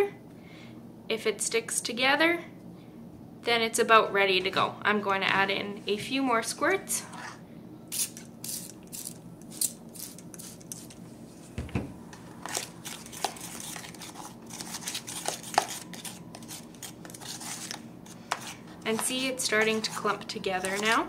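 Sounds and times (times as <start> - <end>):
fork scraping in plastic bowl: 7.0 - 7.4, 12.4 - 21.0.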